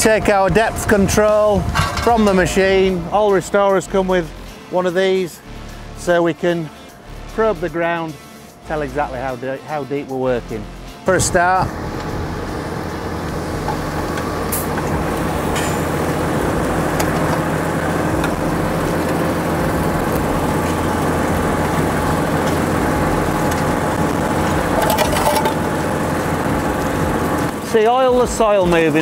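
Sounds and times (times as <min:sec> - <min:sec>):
tractor engine under load: 0:00.0 - 0:04.5, 0:10.4 - 0:29.0.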